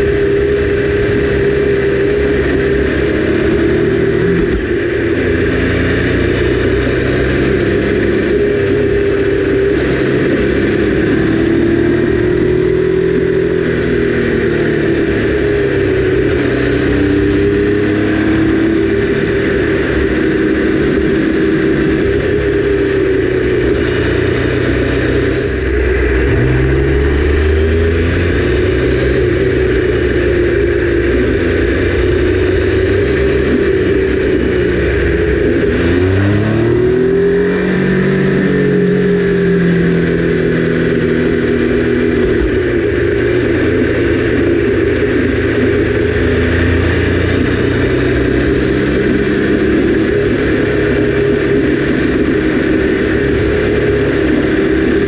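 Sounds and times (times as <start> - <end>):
wind rush: 0.0 - 39.6
motorcycle engine at speed: 0.0 - 55.0.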